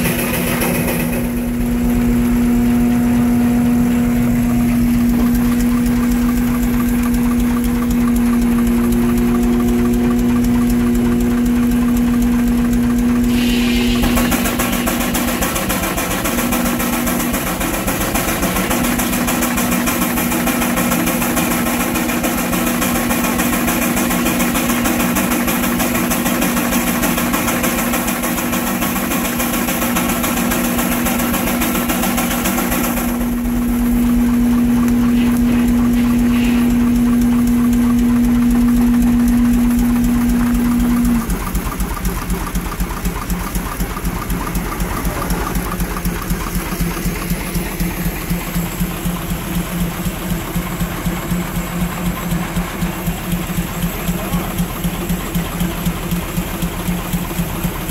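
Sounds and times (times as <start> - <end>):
steam engine running: 0.0 - 57.9
loud rushing noise: 13.3 - 16.2.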